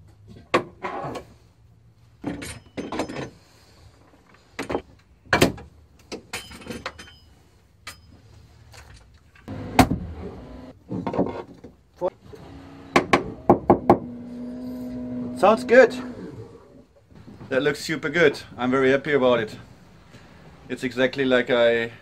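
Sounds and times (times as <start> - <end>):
metal jacks clanking and scraping: 2.2 - 9.5.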